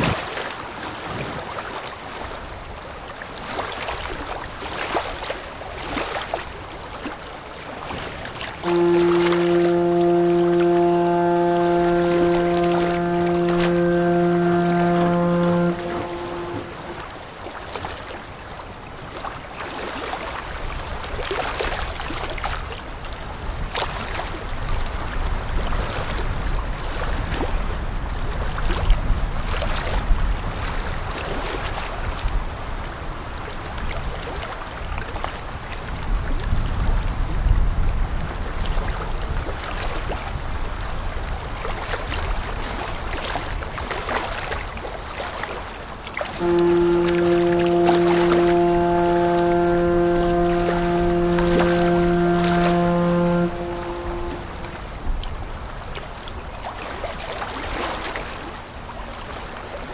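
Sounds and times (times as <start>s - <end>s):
river water washing: 8.6s - 17.2s, 46.2s - 55.1s.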